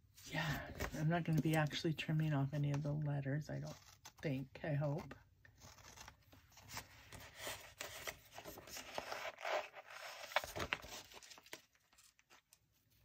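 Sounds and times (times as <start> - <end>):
paper scraping and rustling: 5.6 - 12.6.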